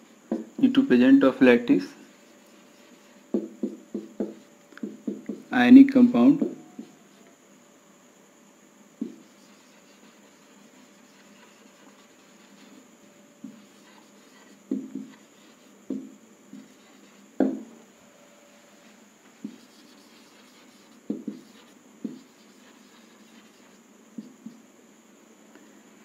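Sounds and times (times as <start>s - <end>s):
marker scraping on whiteboard: 2.2s - 5.5s, 9.0s - 17.6s, 18.5s - 24.6s.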